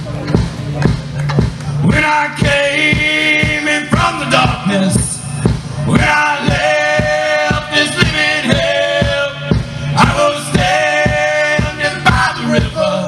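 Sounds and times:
country band playing: 0.0 - 13.0
person singing: 5.9 - 13.0.

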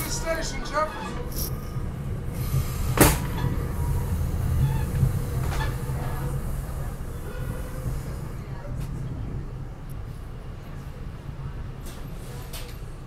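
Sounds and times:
train coach rumble: 0.0 - 13.0.

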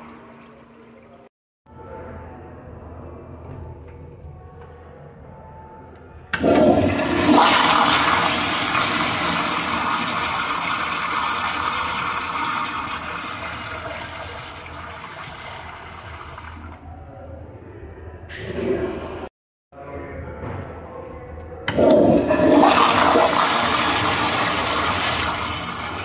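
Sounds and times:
toilet flushing: 0.0 - 1.3, 6.3 - 16.8, 21.7 - 26.0.

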